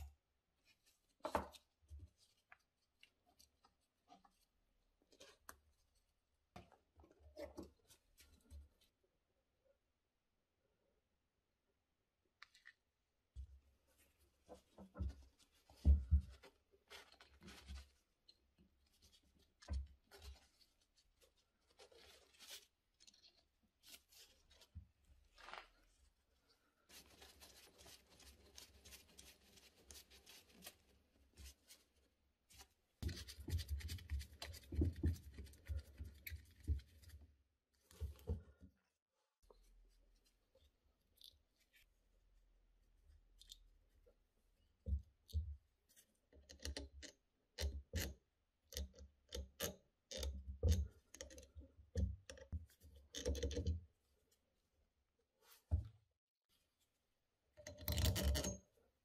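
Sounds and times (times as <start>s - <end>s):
rustling and scraping: 13.8s - 42.0s
small sharp clicks and knocks: 46.3s - 53.9s.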